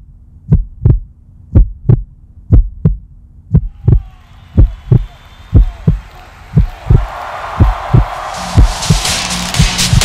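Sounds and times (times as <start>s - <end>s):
low steady hum: 0.0s - 4.0s
heartbeat thumps: 0.4s - 10.0s.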